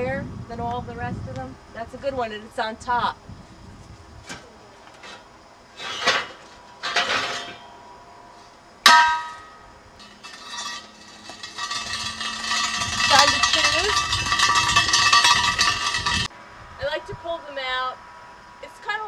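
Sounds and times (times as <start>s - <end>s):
metallic rattling and scraping: 4.9s - 7.8s, 8.9s - 16.3s
steel wheel rims clanking: 5.0s - 7.8s, 8.9s - 16.3s
ringing metallic clang: 5.8s - 7.8s, 8.9s - 16.3s.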